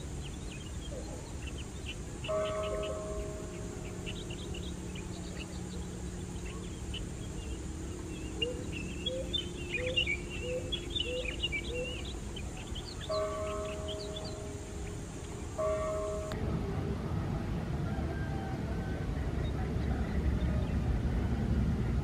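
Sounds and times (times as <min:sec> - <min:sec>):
birds chirping: 0:00.0 - 0:16.4
faint low hum: 0:00.0 - 0:22.0.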